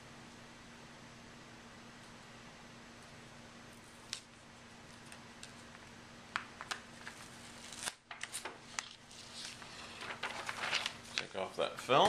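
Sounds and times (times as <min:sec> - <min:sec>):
light clicks and crinkles: 0:03.8 - 0:12.0
masking tape peeling: 0:06.7 - 0:11.3.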